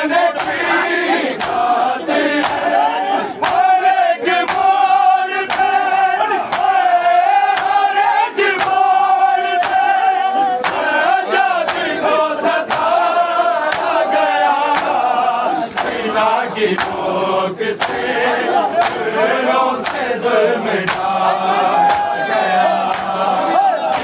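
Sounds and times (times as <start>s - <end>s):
men chanting together: 0.0s - 24.0s.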